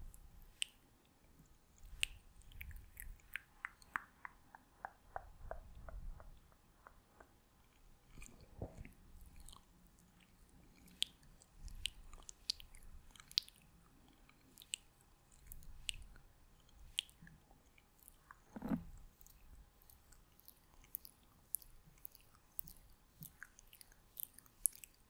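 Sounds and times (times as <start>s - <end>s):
wet mouth clicks and lip smacks: 1.8s - 7.3s, 10.8s - 13.7s, 14.4s - 16.2s, 16.8s - 17.3s, 17.9s - 25.0s
soft low thump: 18.5s - 18.9s.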